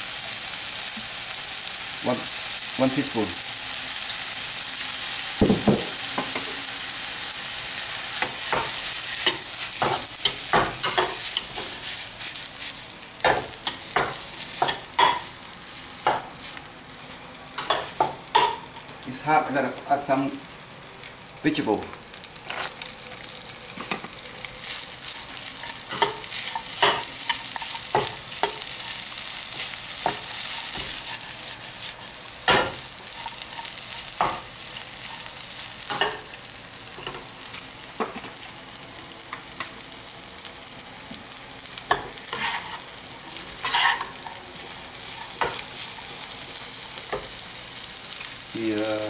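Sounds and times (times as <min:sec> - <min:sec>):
fried rice sizzling in a pan: 0:00.0 - 0:49.0
spatula scraping and knocking pan: 0:43.6 - 0:44.3.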